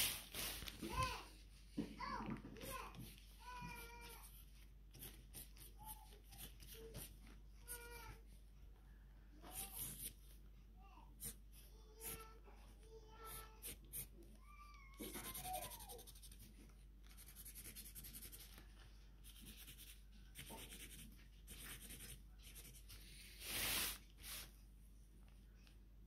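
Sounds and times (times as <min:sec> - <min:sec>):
plastic bag rustling: 0:00.0 - 0:01.1
marker scratching on plastic: 0:04.1 - 0:07.3, 0:09.5 - 0:10.2, 0:11.2 - 0:11.4, 0:13.3 - 0:14.1, 0:15.0 - 0:18.6, 0:19.2 - 0:23.8.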